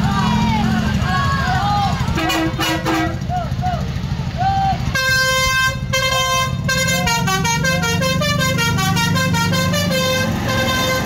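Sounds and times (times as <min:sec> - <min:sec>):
bus engine running: 0:00.0 - 0:11.0
musical air horn melody: 0:02.2 - 0:03.2, 0:05.0 - 0:11.0.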